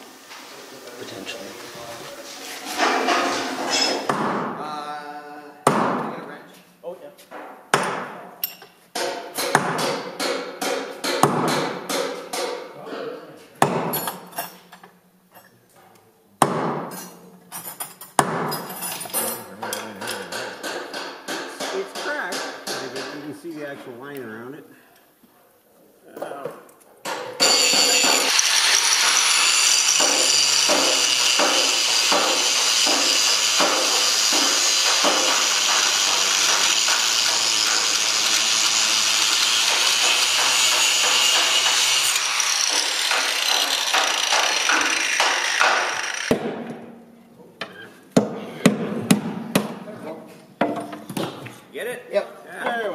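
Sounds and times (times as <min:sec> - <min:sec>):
hammer blows on steel: 0:27.4 - 0:28.3
angle grinder cutting steel: 0:27.4 - 0:46.3.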